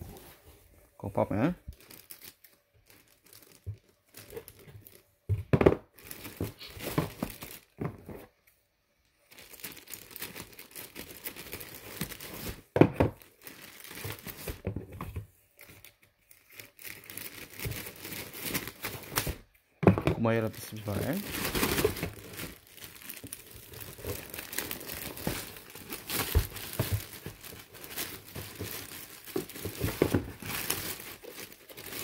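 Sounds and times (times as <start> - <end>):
plastic bag crinkling: 1.1 - 5.1, 5.9 - 7.8, 9.2 - 14.6, 15.6 - 19.4, 20.2 - 32.0.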